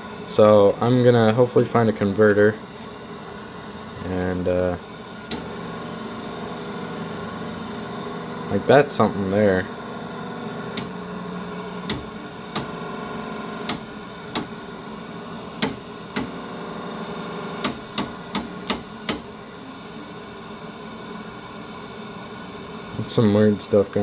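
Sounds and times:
television static hiss: 0.1 - 24.0
channel selector clicking: 10.7 - 11.0, 11.8 - 12.8, 13.6 - 14.6.

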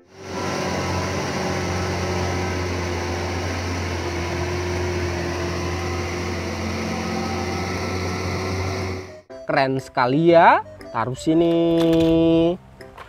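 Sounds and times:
dump truck diesel engine drone: 0.0 - 9.3.

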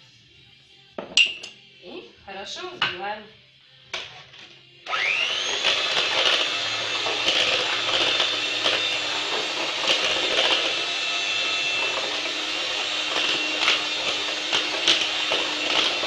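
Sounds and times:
electric hand mixer whipping: 4.8 - 16.0.

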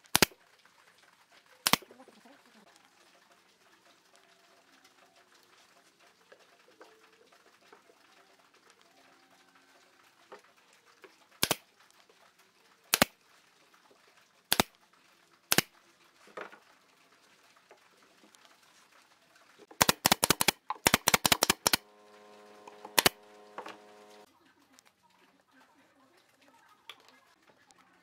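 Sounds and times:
steady hum: 21.6 - 24.3.

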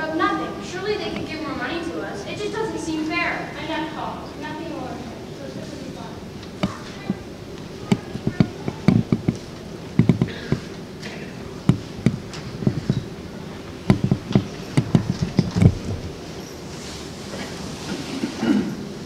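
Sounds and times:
footsteps on wooden stage: 7.8 - 10.8, 11.6 - 13.1, 13.8 - 16.3
stage furniture being moved: 7.8 - 19.0.

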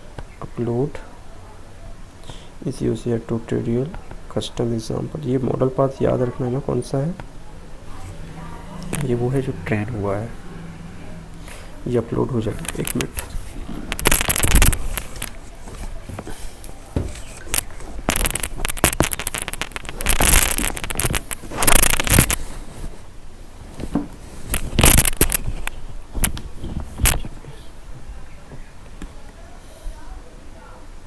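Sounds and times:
crackling on microphone: 7.1 - 29.4.

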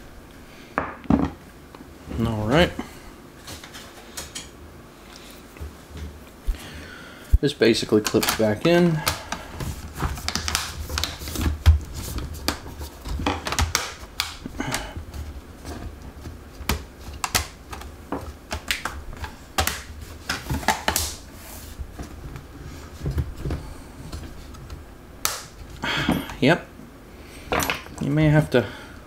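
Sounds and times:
plastic clips clicking and snapping: 8.0 - 9.4.

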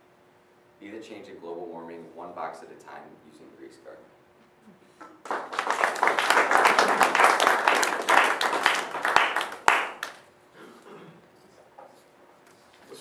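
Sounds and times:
audience applauding: 5.2 - 10.2.

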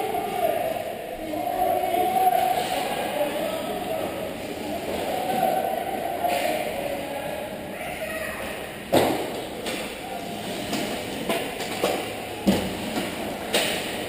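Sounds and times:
hockey sticks and puck knocking: 8.9 - 10.0, 10.7 - 14.0.

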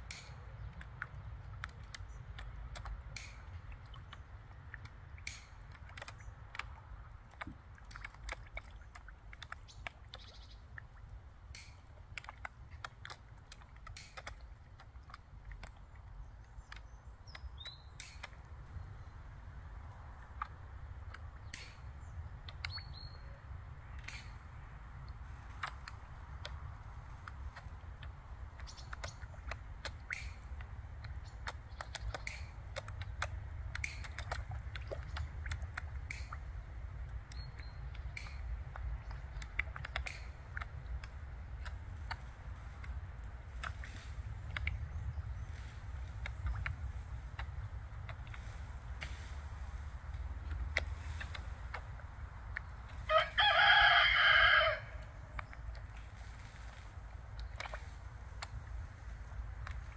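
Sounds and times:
fish popping at water surface: 0.0 - 16.0, 20.0 - 22.9, 25.1 - 53.0
bird chirps: 16.5 - 19.2, 21.4 - 23.4.

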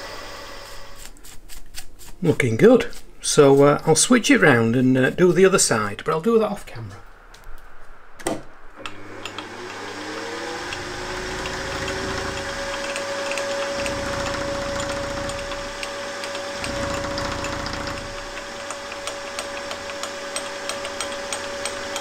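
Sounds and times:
milling machine motor whine: 8.8 - 22.0.

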